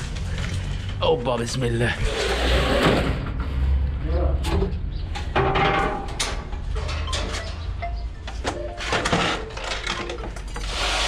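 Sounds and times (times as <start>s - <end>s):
metal cage door clattering: 5.2s - 7.8s.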